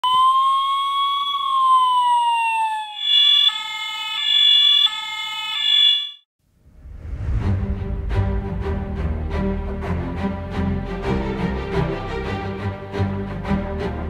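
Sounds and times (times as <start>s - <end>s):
fire engine siren wailing: 0.0s - 6.2s.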